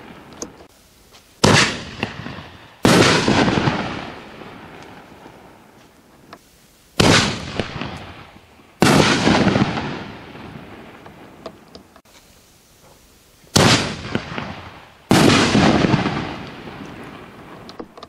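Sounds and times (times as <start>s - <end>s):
firework shell booms: 1.4s - 4.8s, 7.0s - 11.1s, 13.5s - 17.0s.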